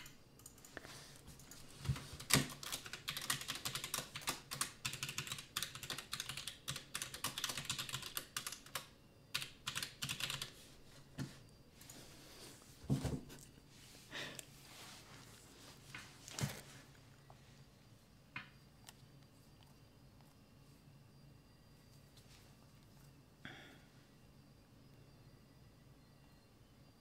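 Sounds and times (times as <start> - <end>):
computer keyboard key clicks: 2.3 - 10.5.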